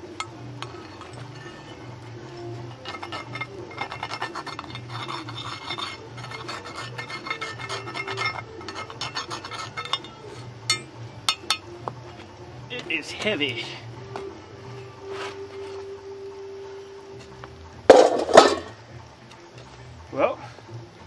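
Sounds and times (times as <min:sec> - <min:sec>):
metal tool scraping sand: 0:00.5 - 0:02.0, 0:02.6 - 0:10.9.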